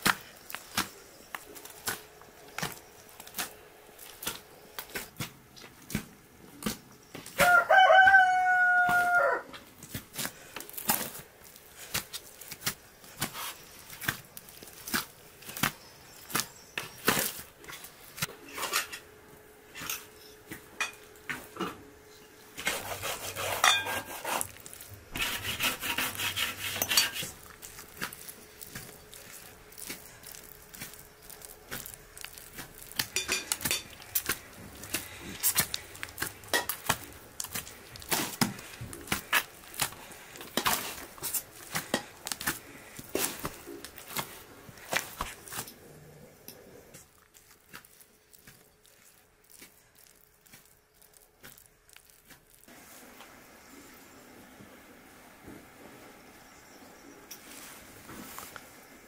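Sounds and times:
hands kneading dough: 0:00.0 - 0:07.6, 0:08.9 - 0:18.4, 0:22.6 - 0:53.3.

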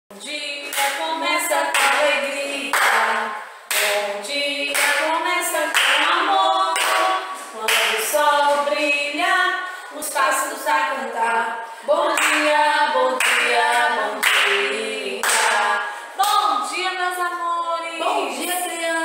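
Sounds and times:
women singing: 0:00.1 - 0:19.0
hands clapping: 0:00.7 - 0:01.1, 0:01.7 - 0:02.1, 0:02.7 - 0:04.1, 0:04.7 - 0:05.1, 0:05.7 - 0:08.1, 0:12.1 - 0:12.5, 0:13.2 - 0:16.4.

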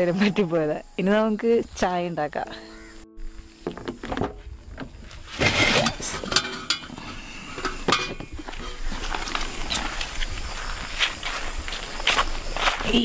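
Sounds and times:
metal clinks and knocks: 0:03.4 - 0:09.9.

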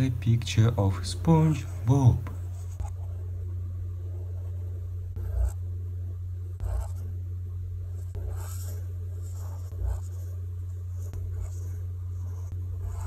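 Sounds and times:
steady low hum: 0:00.0 - 0:13.0
marker scratching on paper: 0:01.5 - 0:03.1, 0:05.2 - 0:05.6, 0:06.6 - 0:07.1, 0:07.9 - 0:13.0.

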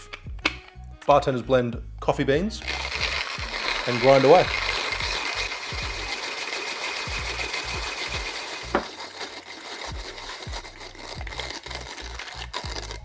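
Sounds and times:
hand coffee grinder crunching beans: 0:02.6 - 0:13.0.

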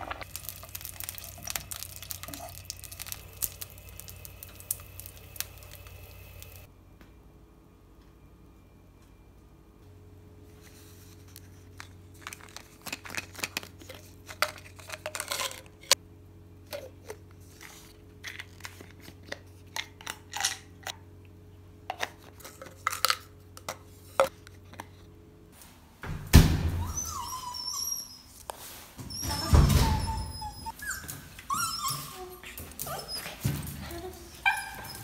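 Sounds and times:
small dog whining: 0:26.8 - 0:28.5, 0:29.1 - 0:35.0.

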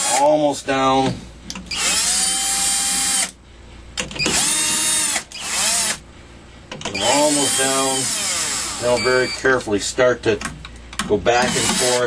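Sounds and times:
power drill running: 0:01.7 - 0:03.3, 0:04.2 - 0:06.0, 0:07.0 - 0:09.4, 0:11.4 - 0:12.0.

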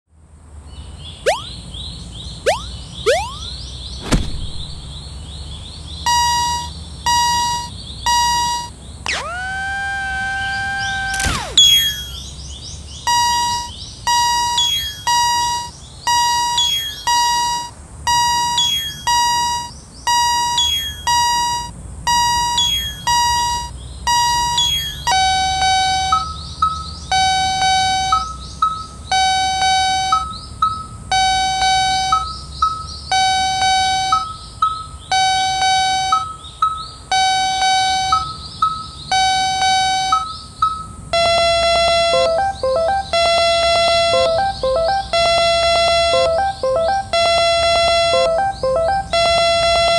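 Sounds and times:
quick electronic jingle: 0:02.5 - 0:04.8, 0:41.2 - 0:49.9.

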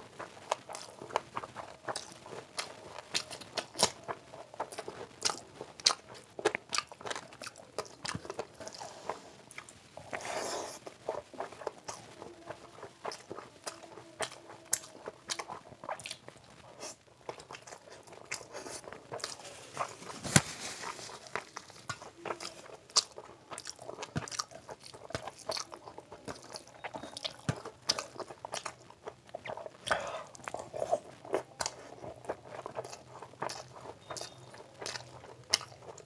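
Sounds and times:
person chewing and crunching: 0:00.0 - 0:36.0.

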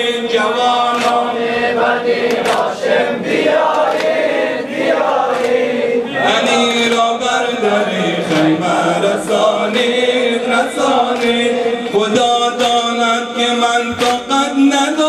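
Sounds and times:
men chanting in unison: 0:00.0 - 0:15.0
hands slapping chests: 0:00.9 - 0:01.3, 0:02.2 - 0:02.7, 0:03.7 - 0:04.3, 0:05.3 - 0:05.7, 0:08.3 - 0:08.6, 0:11.0 - 0:11.5.

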